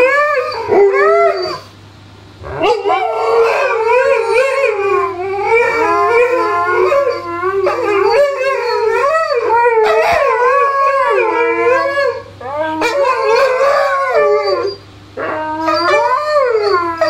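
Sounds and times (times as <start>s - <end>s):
dog howling: 0.0s - 1.7s, 2.4s - 17.0s
second dog howling: 2.5s - 17.0s.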